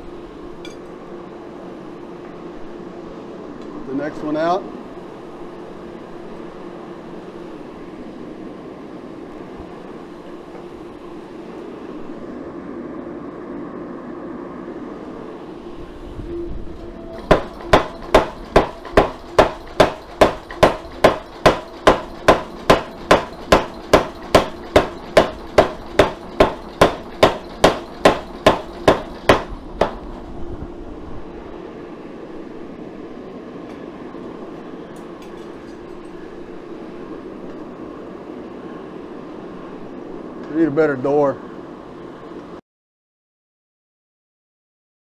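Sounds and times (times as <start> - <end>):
gas forge roaring: 0.0 - 41.2
power hammer striking metal: 17.0 - 30.2.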